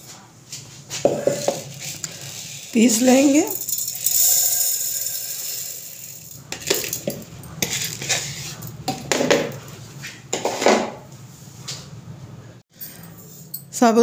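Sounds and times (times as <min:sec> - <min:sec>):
metal jar clinking and knocking: 0:01.1 - 0:09.6.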